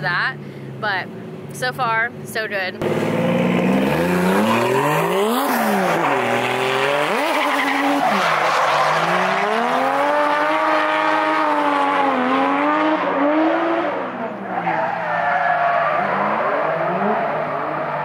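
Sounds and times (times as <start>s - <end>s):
tyres squealing on asphalt: 2.8s - 11.7s, 14.3s - 18.0s
car engine revving: 2.8s - 14.8s.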